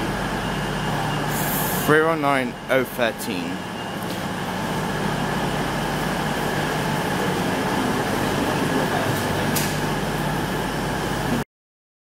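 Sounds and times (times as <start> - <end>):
electric train hum: 0.0 - 11.4
sharp click: 9.5 - 9.8.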